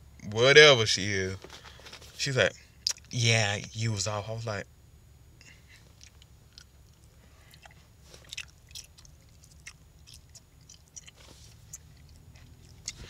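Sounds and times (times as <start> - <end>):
gum chewing: 2.8 - 3.1, 5.7 - 13.0.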